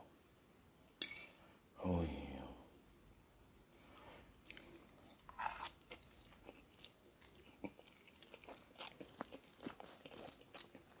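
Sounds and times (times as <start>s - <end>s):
person chewing noodles: 4.4s - 11.0s.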